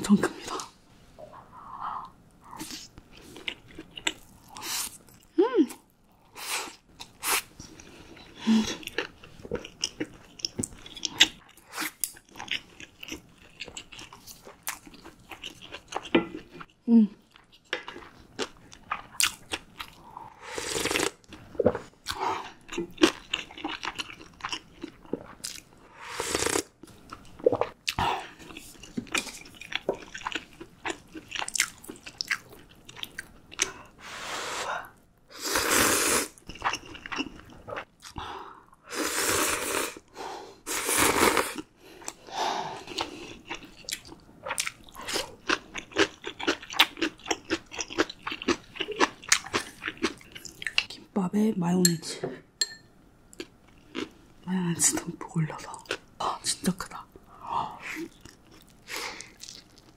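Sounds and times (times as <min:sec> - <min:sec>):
chewing and crunching: 0:06.9 - 0:20.0, 0:21.2 - 0:25.8, 0:26.9 - 0:33.9, 0:42.8 - 0:51.0, 0:58.0 - 0:59.9
slurping broth and noodles: 0:20.4 - 0:21.9, 0:25.9 - 0:26.7, 0:35.3 - 0:36.4, 0:38.9 - 0:40.0, 0:40.6 - 0:43.2.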